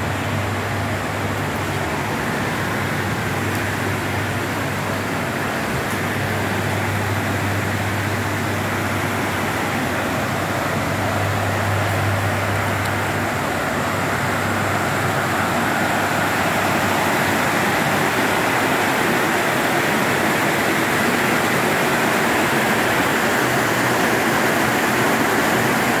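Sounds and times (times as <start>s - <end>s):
heavy rain pouring: 0.0s - 26.0s.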